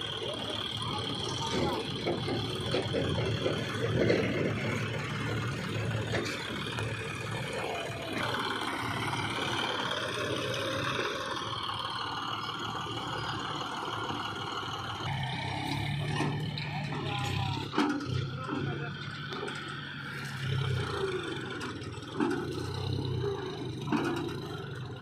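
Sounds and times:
tractor diesel engine running: 0.0 - 25.0.

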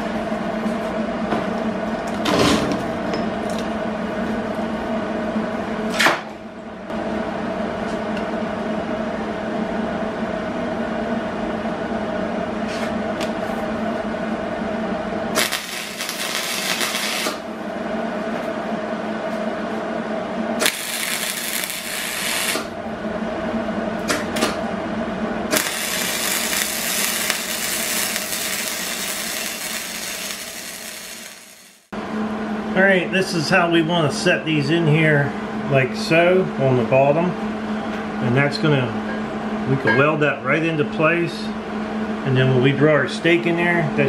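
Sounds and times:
steady hum: 0.0 - 44.0
welding arc crackle and hiss: 15.3 - 17.5, 20.6 - 22.7, 25.5 - 31.9.

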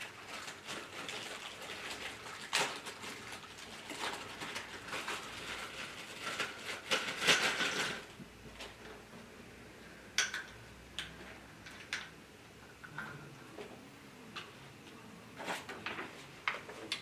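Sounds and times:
clatter of frame parts: 6.2 - 8.1.

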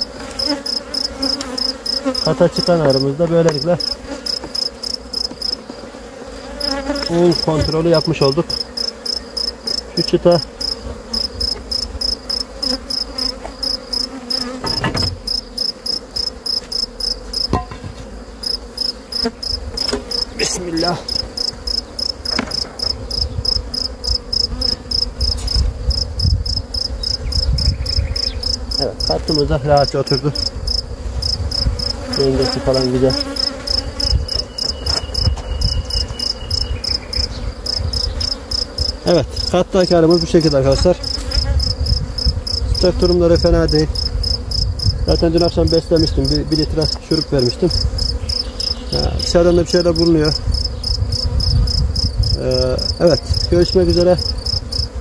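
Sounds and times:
cricket chirping: 0.0 - 5.8, 6.4 - 55.0
honeybees humming: 0.0 - 55.0
knocks of hive parts: 0.4 - 3.7, 4.3 - 5.8, 6.6 - 8.7, 14.4 - 18.2, 19.2 - 24.7.

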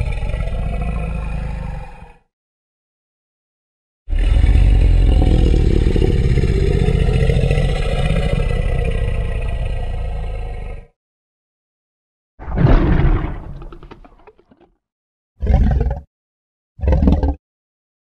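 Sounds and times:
deep dinosaur roar: 0.0 - 2.3, 4.1 - 10.9, 12.4 - 14.4.

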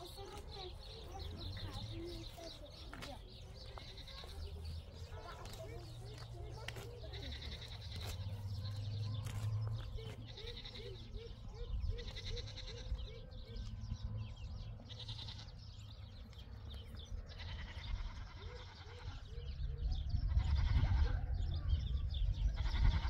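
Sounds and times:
livestock bleating: 3.6 - 4.6, 7.1 - 8.3, 10.3 - 11.1, 12.0 - 13.0, 14.8 - 15.6, 17.3 - 19.3, 20.3 - 21.4, 22.5 - 23.0.

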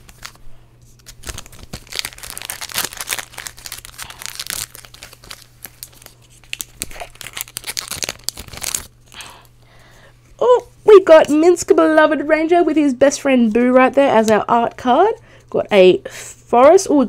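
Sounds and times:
foil wrapper tearing and crinkling: 0.0 - 0.4, 1.0 - 9.3.

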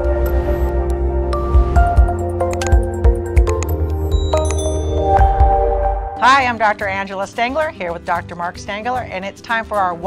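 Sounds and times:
ambient electronic music: 0.0 - 7.0.

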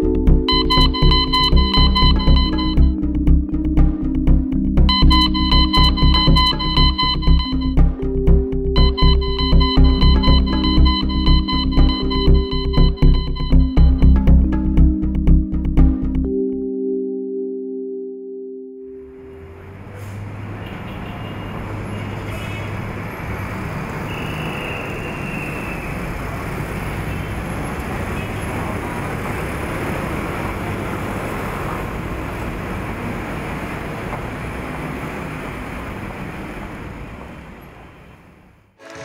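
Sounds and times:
city street traffic: 4.9 - 13.8, 18.9 - 39.0.

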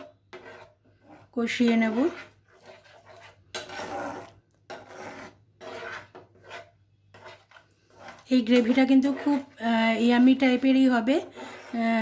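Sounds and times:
metal spatula scraping a pan: 0.0 - 12.0.

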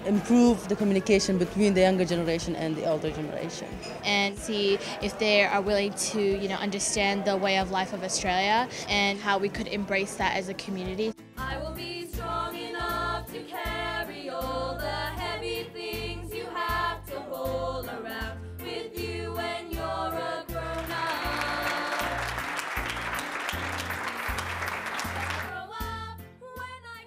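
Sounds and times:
girls chorus singing pop: 11.4 - 22.6, 25.2 - 27.0
audience applause: 20.7 - 25.6.

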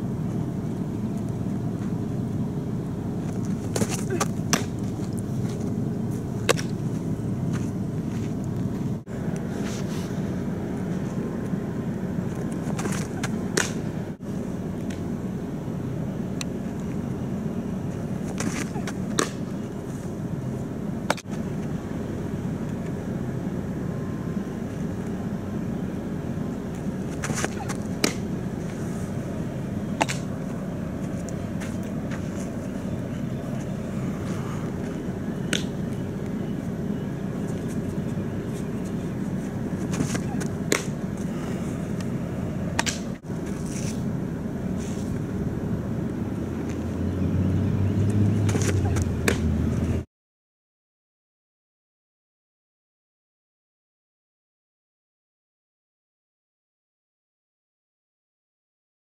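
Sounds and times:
low outdoor rumble: 0.0 - 50.1
ball smacking into mitt: 6.5 - 6.8, 12.7 - 13.8, 27.2 - 28.3, 30.0 - 30.3, 35.5 - 35.8, 39.9 - 41.0, 42.8 - 43.1.

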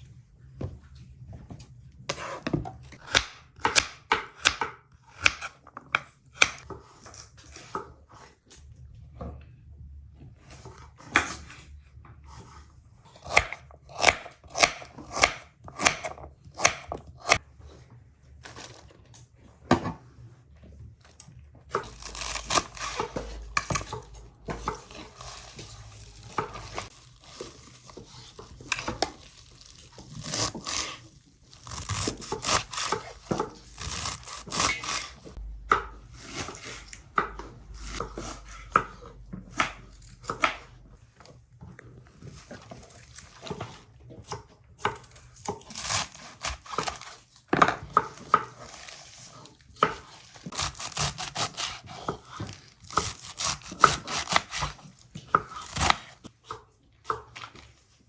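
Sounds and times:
knife chopping on cutting board: 31.6 - 40.7, 49.8 - 57.3.

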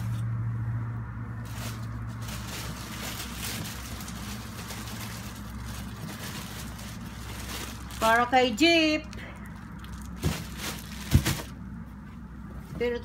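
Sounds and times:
low electrical hum: 0.0 - 13.0
plastic packaging rustling: 1.4 - 8.6, 9.3 - 11.6.

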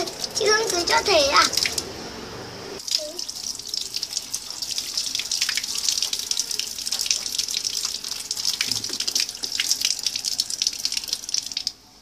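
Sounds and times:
tap water splashing on hands: 8.5 - 11.7.

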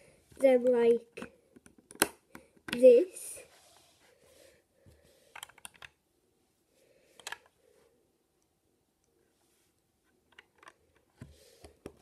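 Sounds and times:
plastic bricks clicking: 5.3 - 6.0, 7.2 - 7.5, 10.3 - 11.0.

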